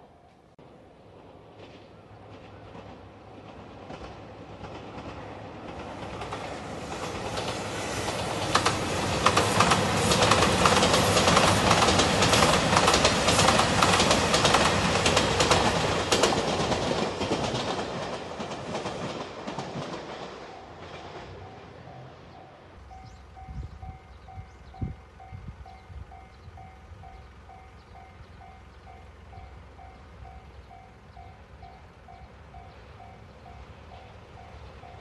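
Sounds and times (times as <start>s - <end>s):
train wheels clattering over rails: 1.5s - 32.8s.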